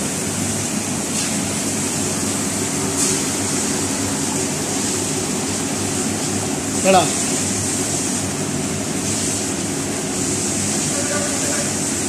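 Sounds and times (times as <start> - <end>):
low hum of kitchen machinery: 0.0 - 12.0
omelettes sizzling on a griddle: 6.2 - 12.0.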